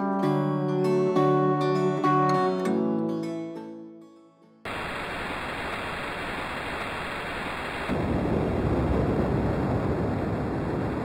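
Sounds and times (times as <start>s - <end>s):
ocean waves sound: 4.7s - 8.8s
white noise hiss: 4.7s - 11.0s.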